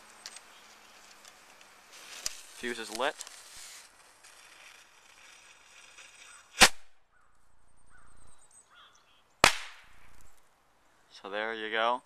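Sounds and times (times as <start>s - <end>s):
fuse hiss: 0.0s - 6.7s
rocket launch crack: 6.5s - 6.9s, 9.4s - 10.1s.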